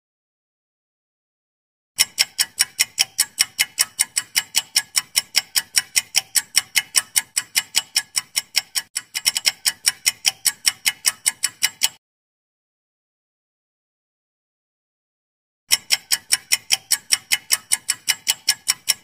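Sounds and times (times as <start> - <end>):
clock ticking: 2.0 - 12.0, 15.7 - 19.0.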